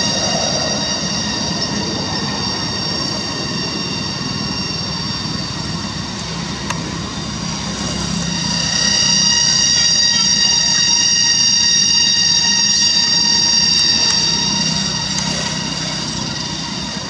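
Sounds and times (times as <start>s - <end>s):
cicadas droning: 0.0s - 17.0s.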